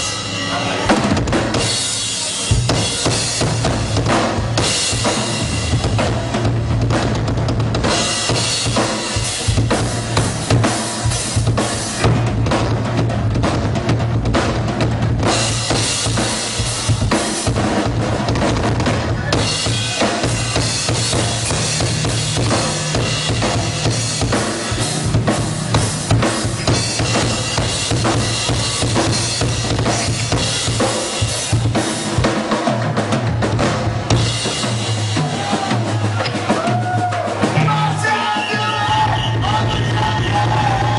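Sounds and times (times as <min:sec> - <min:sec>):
rock drum solo: 0:00.0 - 0:40.9.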